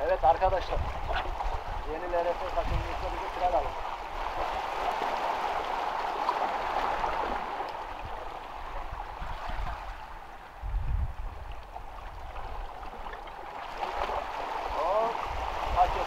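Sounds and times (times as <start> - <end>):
waves splashing against rocks: 0.5 - 16.0.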